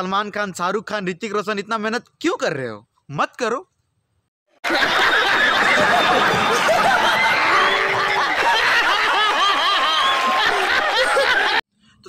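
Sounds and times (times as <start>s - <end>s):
crowd laughing: 4.6s - 11.6s.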